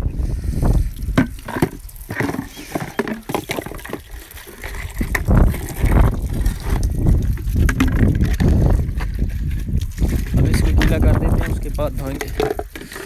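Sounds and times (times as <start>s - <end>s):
wind rumbling on microphone: 0.0s - 13.0s
tap water running: 0.9s - 8.9s
pots and jugs clattering: 1.1s - 9.5s, 10.1s - 13.0s.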